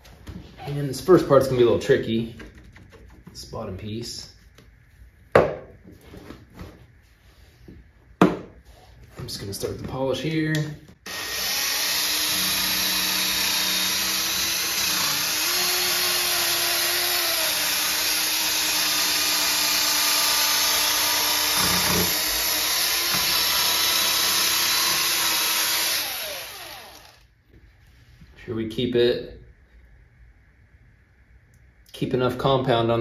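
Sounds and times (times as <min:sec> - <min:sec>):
cordless drill spinning buffing pad: 0:11.1 - 0:27.2.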